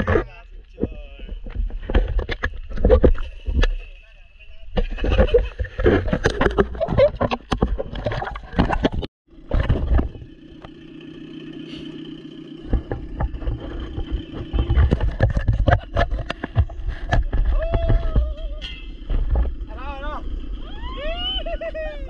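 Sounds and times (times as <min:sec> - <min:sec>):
jet ski engine droning: 0:07.5 - 0:22.0.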